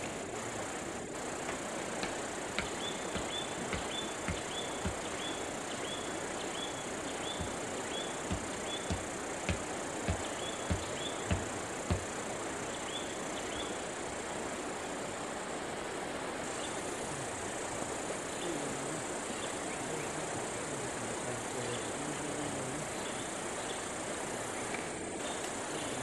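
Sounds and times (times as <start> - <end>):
faint low hum: 0.0 - 26.0
insects droning: 0.0 - 26.0
sharp knocks: 1.4 - 5.4, 7.2 - 12.2.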